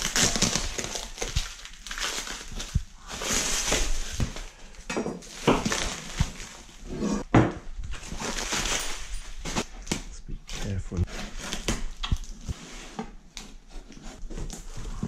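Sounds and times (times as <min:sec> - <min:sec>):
packaging crinkling and crunching: 0:00.0 - 0:06.8, 0:07.8 - 0:10.0.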